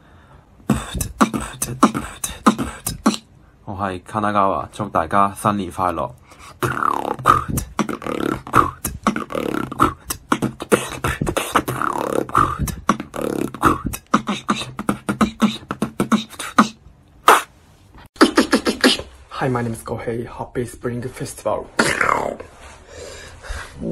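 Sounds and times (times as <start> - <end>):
human beatbox: 0.6 - 3.3, 6.4 - 17.6, 18.2 - 19.2.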